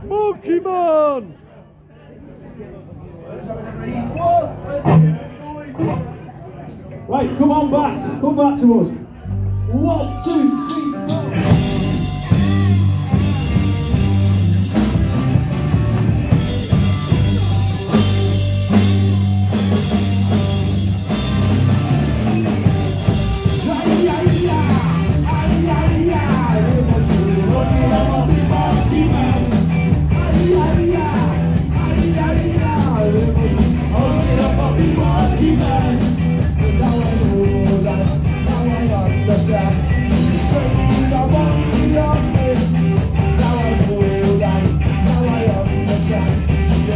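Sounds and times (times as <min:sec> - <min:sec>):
live rock band playing: 0:04.8 - 0:06.8, 0:09.2 - 0:46.9
count-in: 0:09.7 - 0:14.3
person singing: 0:10.0 - 0:13.8, 0:23.5 - 0:46.9.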